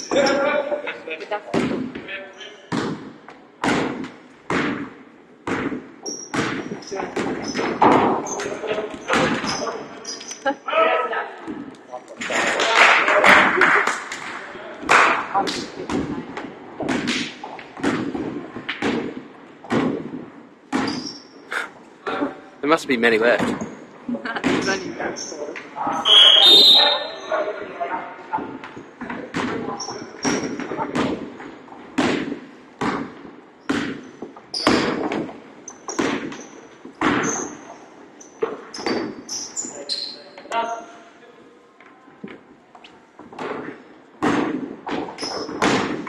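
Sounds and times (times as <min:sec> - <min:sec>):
sneakers squeaking on floor: 0:05.7 - 0:10.6, 0:20.7 - 0:21.6, 0:23.4 - 0:27.4, 0:28.4 - 0:31.8, 0:33.0 - 0:41.0, 0:44.9 - 0:46.0.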